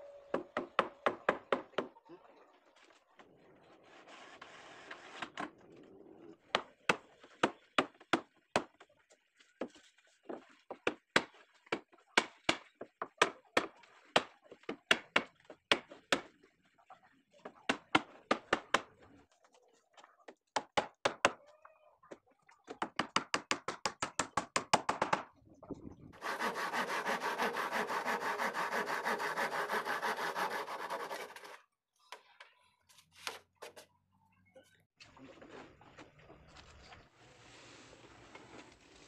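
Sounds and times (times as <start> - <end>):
hand saw cutting plank: 26.2 - 31.6.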